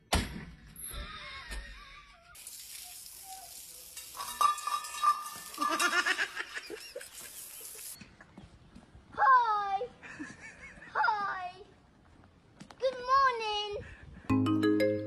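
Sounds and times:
steady hiss: 0:02.4 - 0:08.0.

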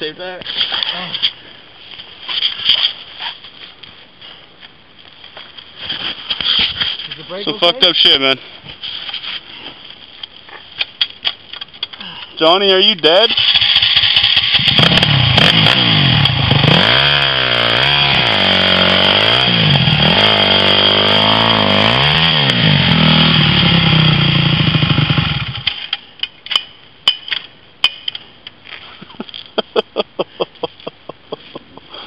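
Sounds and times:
dirt bike engine revving: 0:13.2 - 0:25.8.

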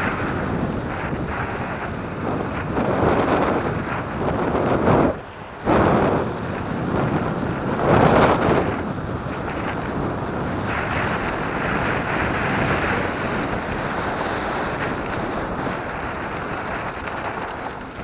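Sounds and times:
wind on microphone: 0:00.0 - 0:18.0
tyres rolling on gravel: 0:04.9 - 0:18.0.

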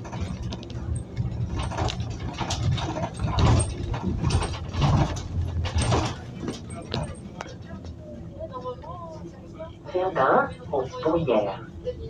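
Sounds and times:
interior panels rattling: 0:00.0 - 0:07.3
bus engine rumble: 0:00.0 - 0:12.0.

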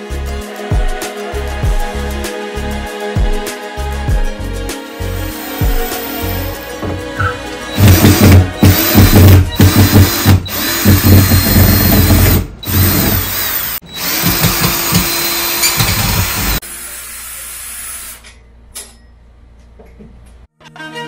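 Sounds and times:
cordless drill drilling into wood: 0:07.8 - 0:18.2.

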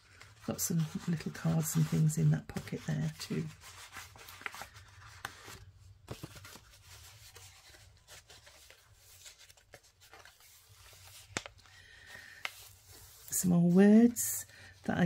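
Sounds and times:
paper rustling and tapping: 0:04.4 - 0:07.8, 0:09.4 - 0:12.8.

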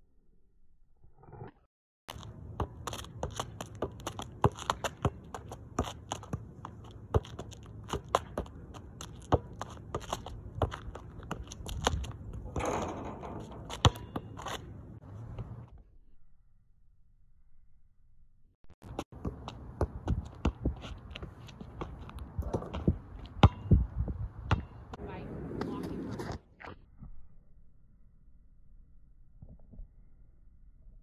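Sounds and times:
ball tapping on shoes and asphalt: 0:02.1 - 0:12.6, 0:18.9 - 0:24.9.

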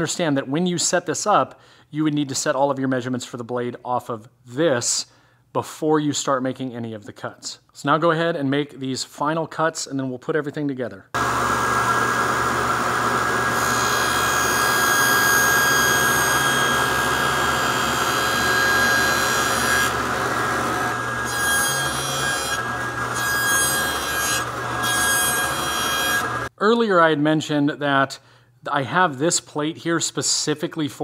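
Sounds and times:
saw blade cutting wood: 0:11.2 - 0:26.5
table saw hum and whine: 0:11.2 - 0:26.5.

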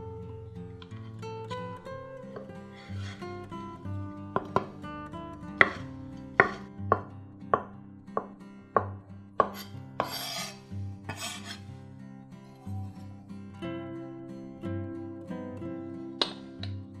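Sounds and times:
knife scraping board: 0:02.4 - 0:03.3, 0:06.4 - 0:06.6, 0:09.4 - 0:11.7
knife chopping on wooden board: 0:04.4 - 0:04.8, 0:05.6 - 0:10.5, 0:11.1 - 0:11.6, 0:16.2 - 0:16.4.

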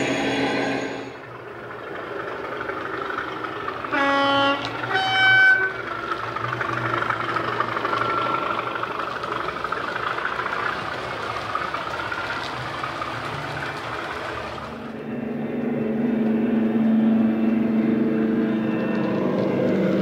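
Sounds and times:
diesel engine running: 0:00.0 - 0:20.0
two-tone train horn: 0:03.8 - 0:06.1.

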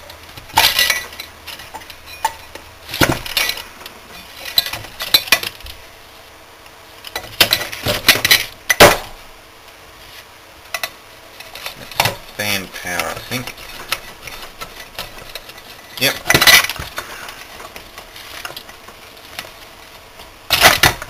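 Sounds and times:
small metal and plastic parts clinking: 0:00.4 - 0:05.7, 0:10.7 - 0:19.6.

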